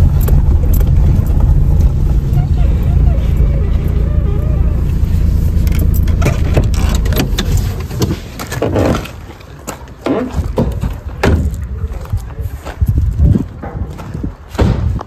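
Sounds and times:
car engine running: 0:00.0 - 0:09.3.

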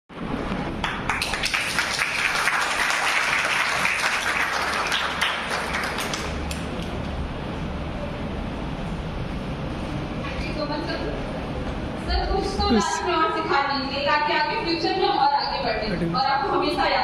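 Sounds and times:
audience applauding: 0:00.8 - 0:07.2.

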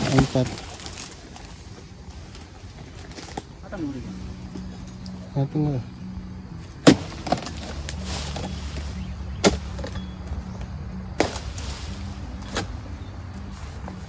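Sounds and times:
chisel chopping fruit bunch: 0:06.8 - 0:08.5, 0:09.4 - 0:10.0, 0:11.2 - 0:11.6.

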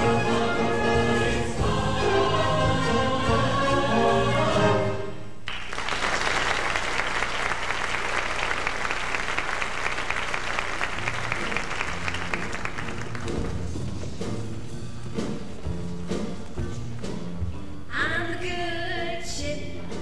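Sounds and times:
choir singing with accompaniment: 0:00.0 - 0:05.3
audience applause: 0:05.5 - 0:13.7.

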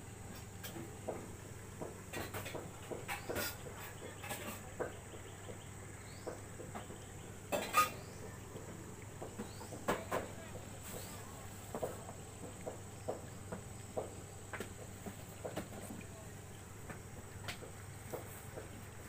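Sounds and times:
dishes and cutlery clattering: 0:07.5 - 0:08.1.

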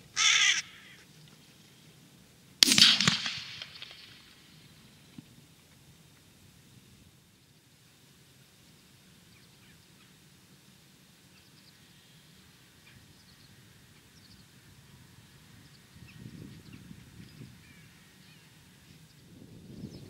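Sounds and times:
high bird calls: 0:00.0 - 0:01.3
faint field ambience: 0:00.0 - 0:20.0.

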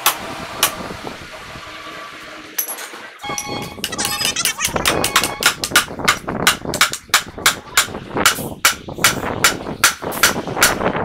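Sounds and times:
hammer striking metal punch: 0:04.8 - 0:10.8.

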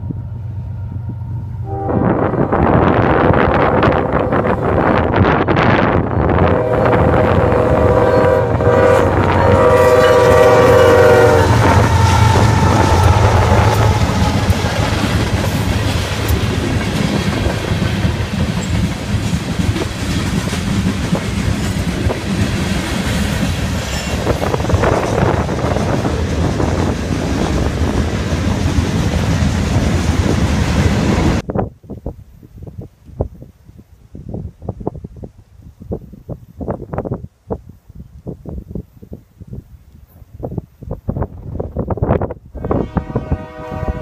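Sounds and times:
diesel locomotive rumble: 0:00.0 - 0:31.5
locomotive air horn: 0:01.6 - 0:03.0, 0:06.4 - 0:15.2, 0:42.6 - 0:44.0
train wheels clickety-clack: 0:11.5 - 0:31.4.

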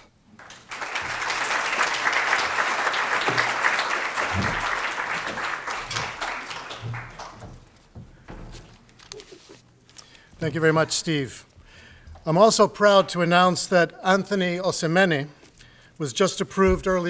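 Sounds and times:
audience clapping: 0:00.0 - 0:08.0.

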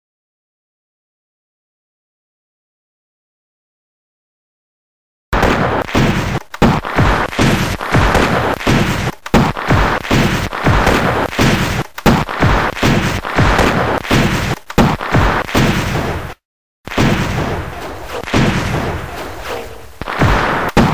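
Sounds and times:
rifle gunfire with echoing tail: 0:05.4 - 0:16.3, 0:16.9 - 0:20.9.

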